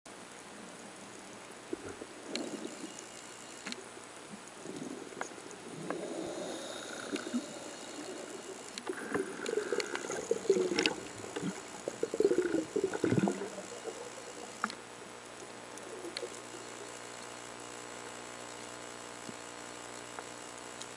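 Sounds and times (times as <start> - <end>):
low hiss: 0.1 - 20.9
sharp clicks and crackles: 1.7 - 17.4
underwater gurgling and knocking: 8.8 - 14.7.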